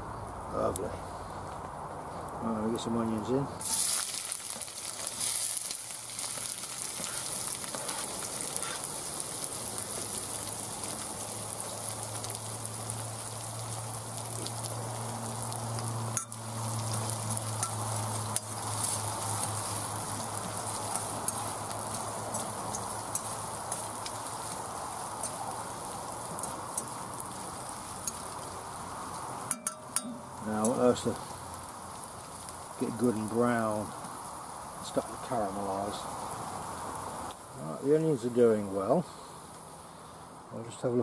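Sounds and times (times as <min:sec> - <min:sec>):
onions sizzling in oil: 0:03.6 - 0:40.5
spoon scraping wok: 0:16.0 - 0:24.6.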